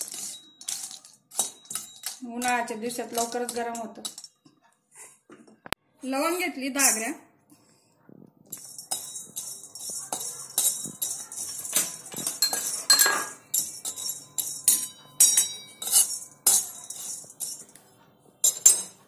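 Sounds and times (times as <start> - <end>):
metal spatula scraping iron pan: 8.5 - 17.8
sharp metal clink: 8.5 - 17.8.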